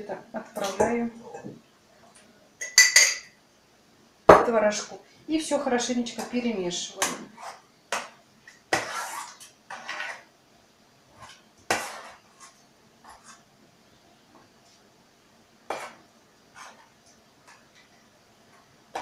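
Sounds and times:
spoon scraping and clinking a pot: 2.6 - 3.4.

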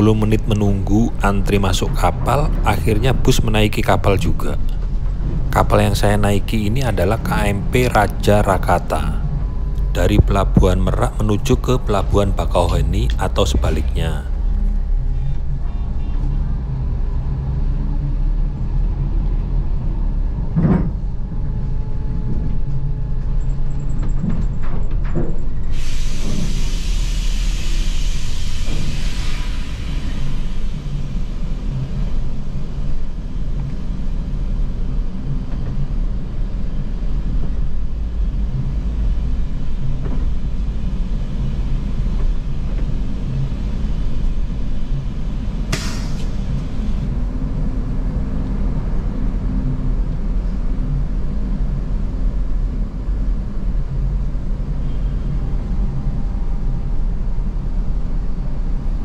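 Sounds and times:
short hiss: 45.7 - 47.0.

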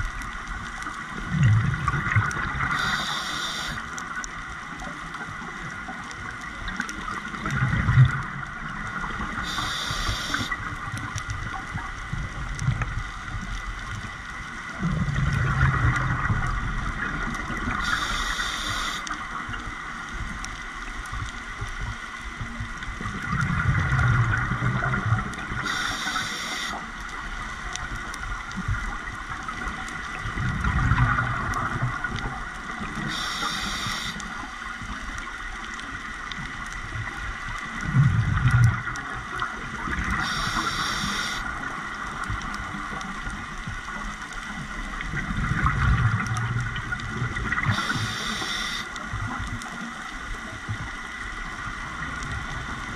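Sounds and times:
exhaust bubbling underwater: 1.2 - 3.8
regulator inhale hiss: 2.7 - 3.9, 9.4 - 10.6, 17.8 - 19.2, 25.6 - 26.8, 33.0 - 34.4, 40.2 - 41.5, 47.7 - 49.0.

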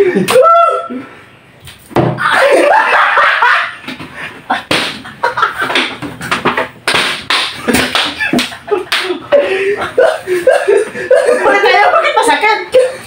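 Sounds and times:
plastic bottle smacking a head: 1.7 - 2.2, 4.7 - 5.0, 5.6 - 9.1
loud laughter: 2.2 - 3.8, 7.6 - 13.0.

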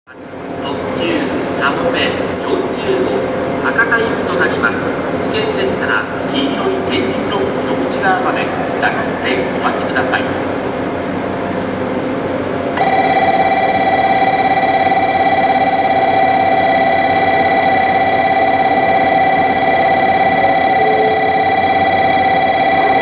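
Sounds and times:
electronic platform signal bell: 12.8 - 23.0.

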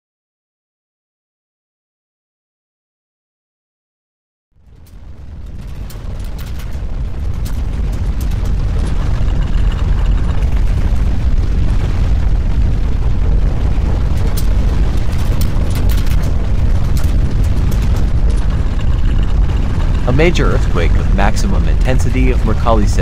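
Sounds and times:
deep rumbling noise: 4.6 - 23.0
faint clicks and rattles: 4.6 - 23.0.

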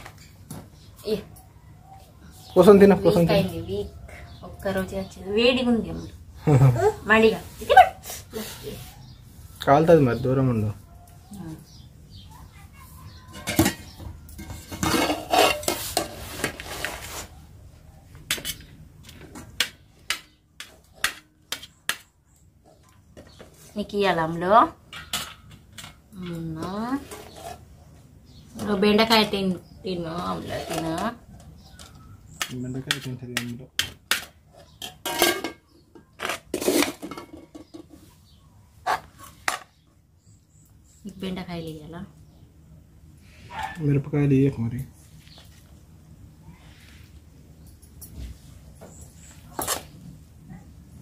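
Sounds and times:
metal spoon clinking on steel plates: 13.3 - 16.2, 24.9 - 26.4, 31.8 - 37.9
metal lid clattering and scraping: 13.3 - 17.3, 24.9 - 27.7, 33.8 - 38.1
spoon scooping rice: 49.3 - 50.0.

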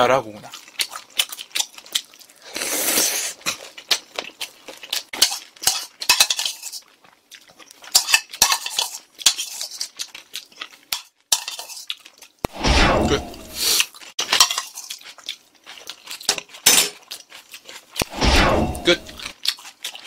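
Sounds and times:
chopsticks and spoon scraping bowl: 5.0 - 6.9, 7.8 - 10.1, 10.9 - 12.1, 13.1 - 15.2, 18.0 - 20.0.

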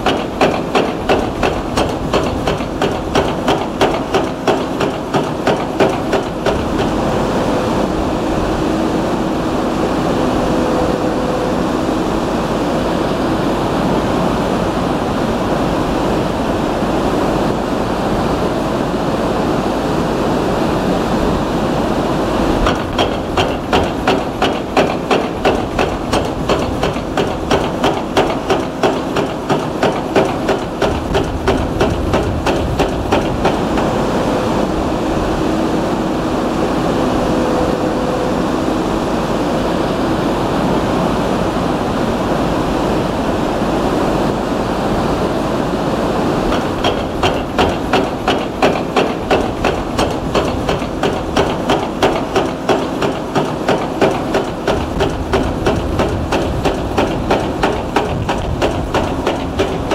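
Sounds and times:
hydraulic breaker hammering concrete: 0.0 - 7.2, 22.6 - 34.6, 46.5 - 59.9.

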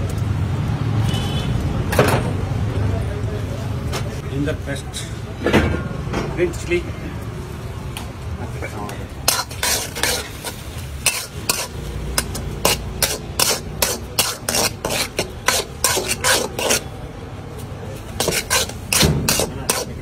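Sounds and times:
chillies and onions frying: 0.0 - 20.0
spatula scraping a pan: 9.2 - 17.0, 17.9 - 20.0.

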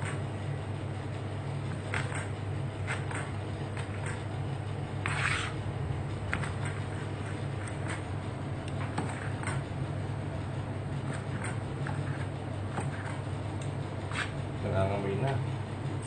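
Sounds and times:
low hum: 0.0 - 16.0
short scraping: 5.0 - 5.6.

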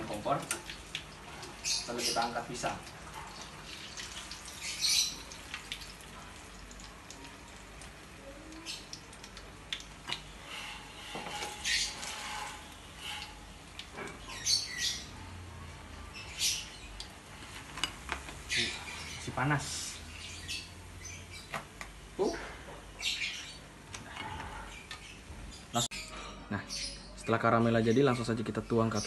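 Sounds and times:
oil sizzling and crackling: 0.0 - 14.8.

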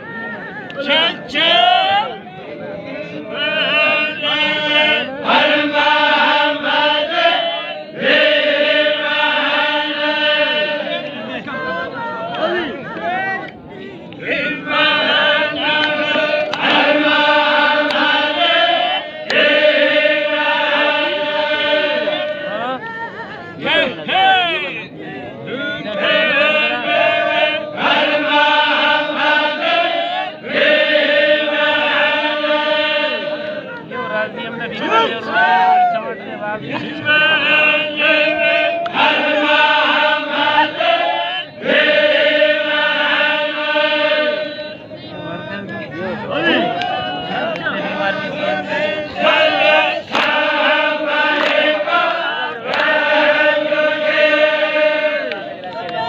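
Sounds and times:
men chanting devotional song: 0.1 - 56.0
sharp claps: 15.8 - 16.9, 17.8 - 18.2, 19.2 - 19.5, 50.0 - 50.5, 51.3 - 53.0.

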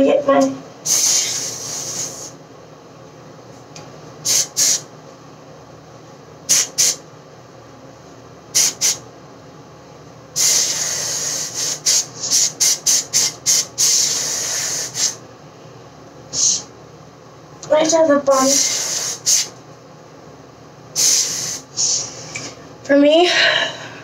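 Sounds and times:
aerosol can spraying: 0.9 - 2.3, 4.3 - 4.8, 6.5 - 7.0, 8.6 - 9.0, 10.4 - 15.2, 18.4 - 19.5, 21.0 - 22.0.

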